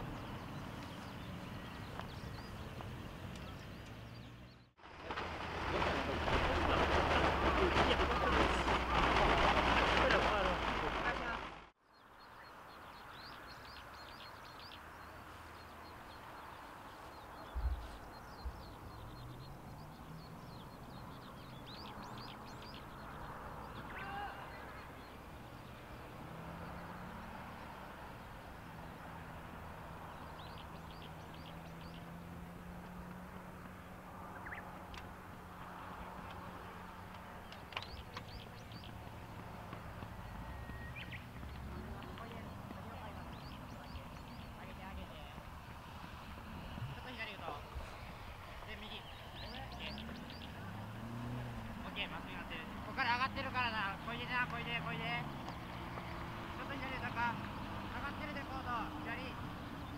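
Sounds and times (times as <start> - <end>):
birds chirping: 0.0 - 59.9
loud bird call: 23.7 - 25.2.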